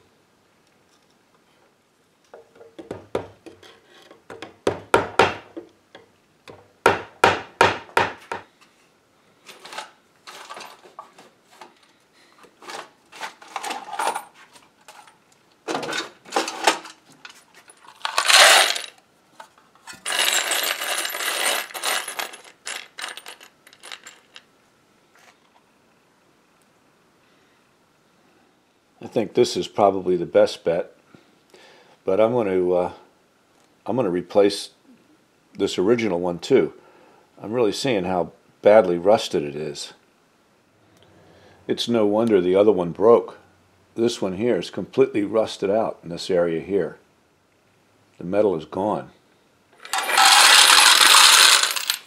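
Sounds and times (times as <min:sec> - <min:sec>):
metal screws clinking: 0:17.6 - 0:19.0, 0:19.9 - 0:24.5, 0:49.8 - 0:52.0.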